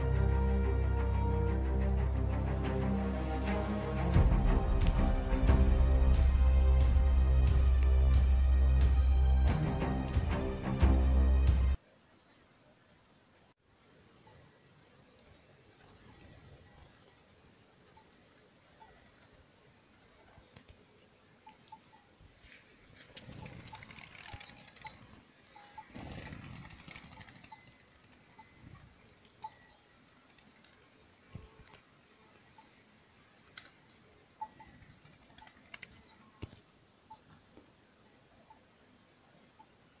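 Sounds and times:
high insect drone: 0.0 - 11.8, 13.6 - 40.0
doves flapping wings: 15.8 - 17.3, 20.2 - 20.8, 22.4 - 31.8, 33.4 - 34.0, 34.6 - 36.6.

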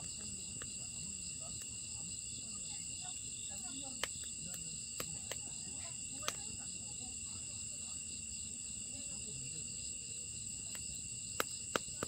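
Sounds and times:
wood fire crackling: 0.0 - 6.6, 10.4 - 12.0
fire popping: 0.0 - 6.7, 10.5 - 12.0
crickets chirring: 0.0 - 12.0.

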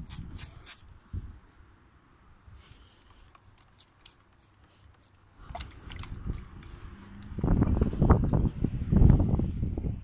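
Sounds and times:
spray bottle squirting: 3.0 - 5.2
low rumble on microphone: 5.5 - 10.0.

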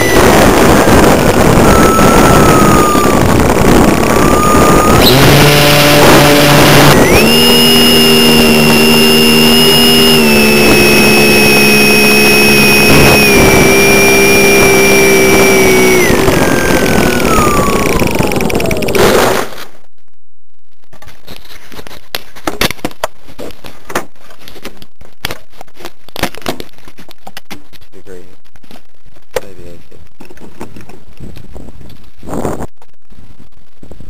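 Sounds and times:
wind rush: 0.0 - 11.5, 12.5 - 19.4
model plane motor whine: 0.0 - 19.0.

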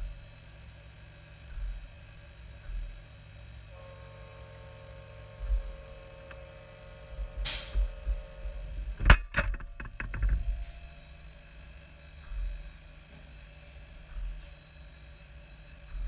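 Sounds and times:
faint motor whine: 0.0 - 16.0
rattle of small knocks: 9.0 - 10.6.

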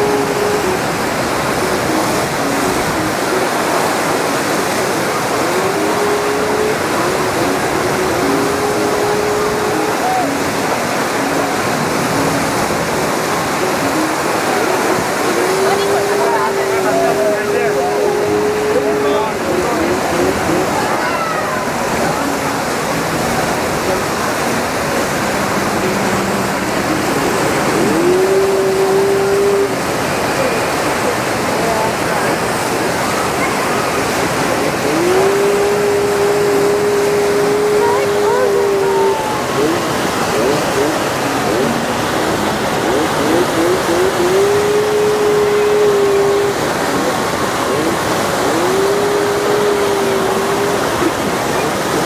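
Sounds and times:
held swooping note: 0.0 - 52.0
water rushing over rocks: 0.0 - 52.0.

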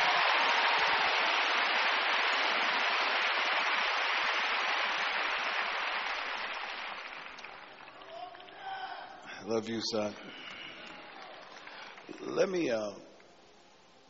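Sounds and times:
large crowd clapping: 0.0 - 9.0, 10.3 - 12.8.

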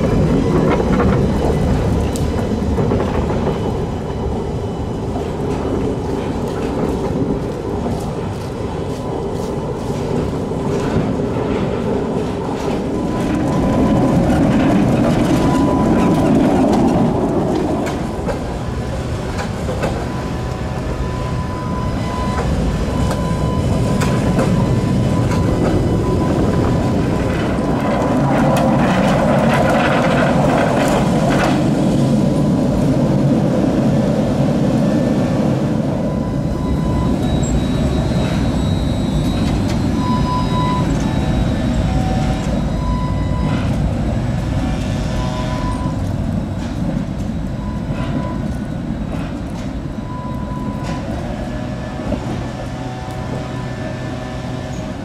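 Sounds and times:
tram wheels clattering over rails: 0.0 - 55.0.

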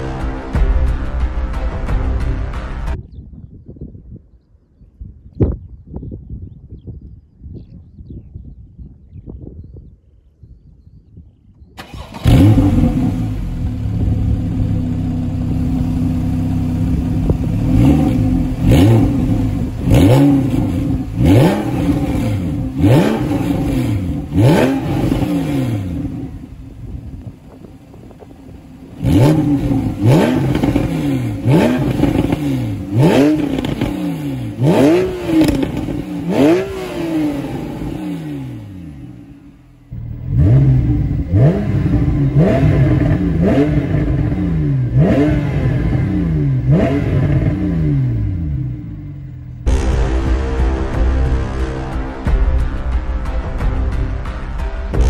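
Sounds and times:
car engine revving: 11.8 - 52.9
car engine idling: 11.8 - 54.0.

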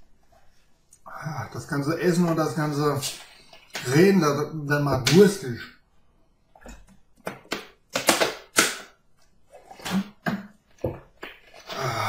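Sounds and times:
person gulping from a bottle: 9.6 - 12.0.

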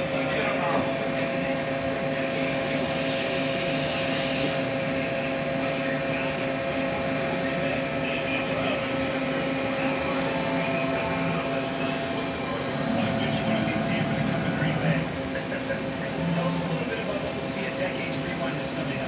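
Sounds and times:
machine hum with held tones: 8.4 - 18.5.

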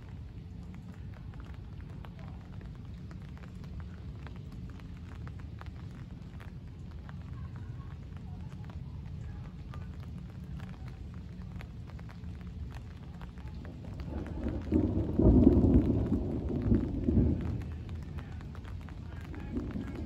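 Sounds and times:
thunder rumbling: 13.6 - 20.0.

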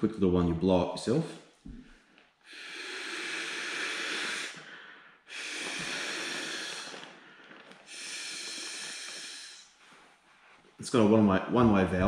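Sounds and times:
breaths blown into pillow valve: 1.7 - 10.6.

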